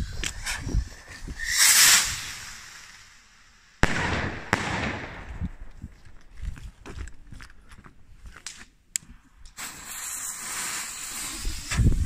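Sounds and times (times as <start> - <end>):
firework rocket whoosh: 0.0 - 5.2, 9.6 - 12.0
firework crackling: 0.0 - 5.6, 9.5 - 12.0
firework bang: 3.8 - 5.5.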